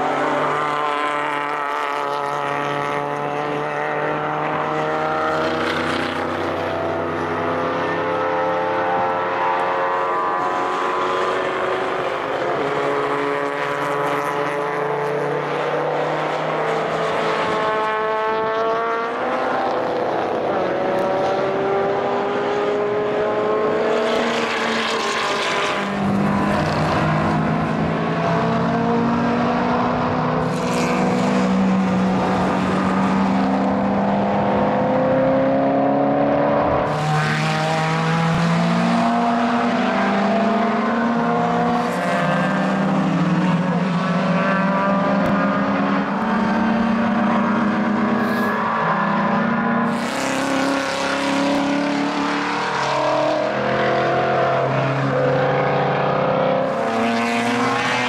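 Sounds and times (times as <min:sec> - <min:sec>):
racing car engines accelerating: 0:00.0 - 0:58.0.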